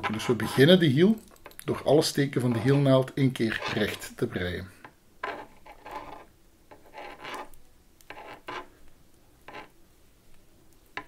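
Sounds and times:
knitting needles scraping: 0.0s - 1.8s, 2.4s - 4.2s, 5.2s - 9.8s.

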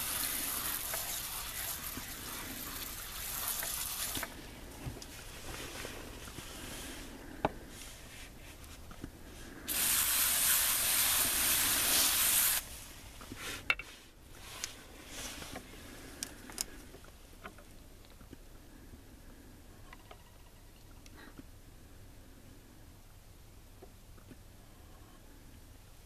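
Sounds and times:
sprayer nozzle hissing: 0.0s - 4.4s, 9.7s - 12.7s
faint clicks: 15.6s - 18.4s.

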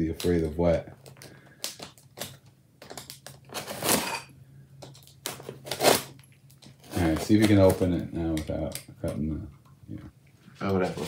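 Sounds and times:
knife slicing rips through tape: 5.2s - 6.1s.

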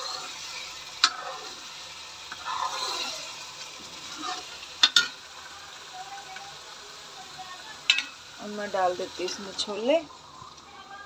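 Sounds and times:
masala paste sizzling in oil: 0.0s - 11.0s
spoon stirring swish: 2.4s - 3.2s.

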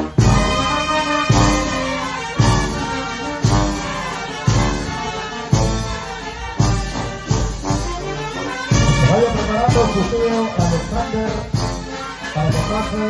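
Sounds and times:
dance music with brass: 0.0s - 13.0s
heavy bass beat: 8.7s - 11.9s.

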